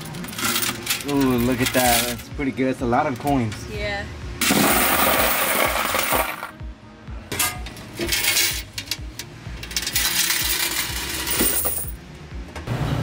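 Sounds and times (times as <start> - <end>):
coins sliding and clinking: 0.0 - 2.2, 8.0 - 9.0, 9.6 - 12.0
background music with steady beat: 0.0 - 12.7.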